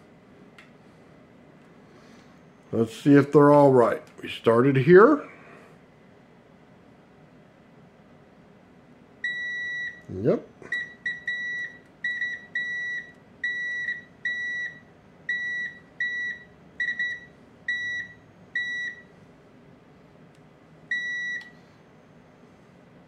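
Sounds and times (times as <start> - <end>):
multimeter continuity beeps: 9.2 - 10.1, 10.7 - 19.1, 20.9 - 21.6.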